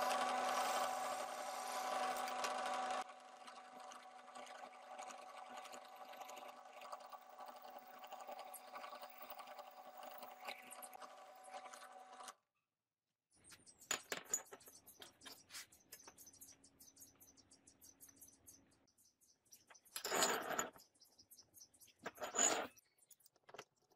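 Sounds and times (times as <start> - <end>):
drill press boring through steel: 0.0 - 10.0.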